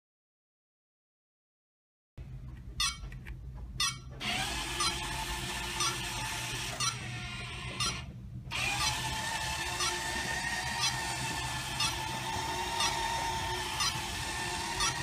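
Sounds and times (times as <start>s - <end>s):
robot drive motors whining: 4.2s - 15.0s.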